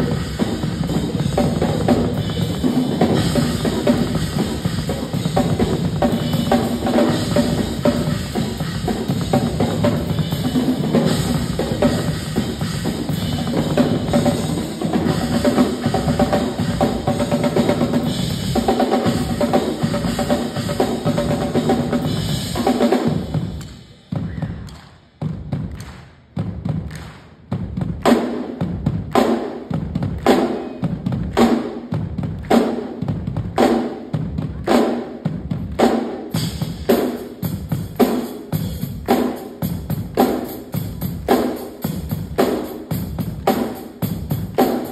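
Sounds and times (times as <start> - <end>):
acoustic drum kits playing: 0.0 - 44.9
drum and cymbal hits: 0.0 - 44.9
sharp hand claps: 23.6 - 23.9, 24.6 - 33.8, 38.9 - 40.6.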